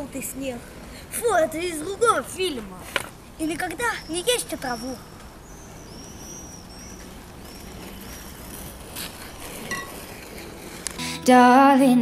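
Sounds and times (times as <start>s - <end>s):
small bird chirping: 3.7s - 8.5s.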